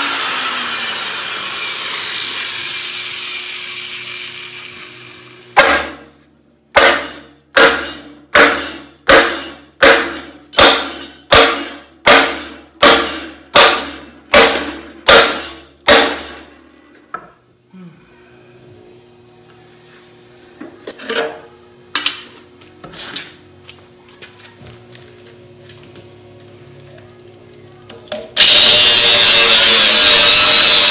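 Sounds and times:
sledgehammer striking steel: 0:05.6 - 0:06.1, 0:06.7 - 0:16.5.

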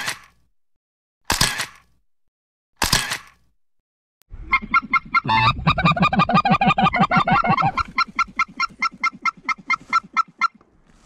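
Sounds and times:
geese honking: 0:04.4 - 0:10.6.

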